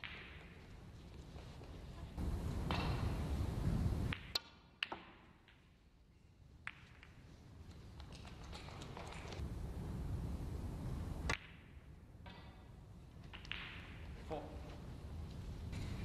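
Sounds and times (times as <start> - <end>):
snooker balls clicking: 4.0 - 5.7, 6.6 - 9.4, 13.1 - 14.4.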